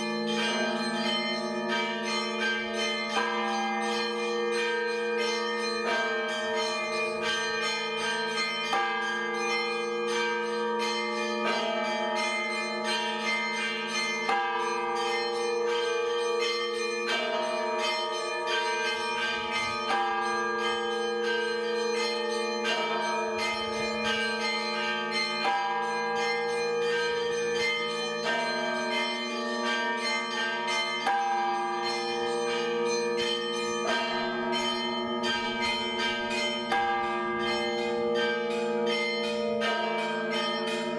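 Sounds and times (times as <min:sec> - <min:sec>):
bells ringing in a peal: 0:00.0 - 0:40.9.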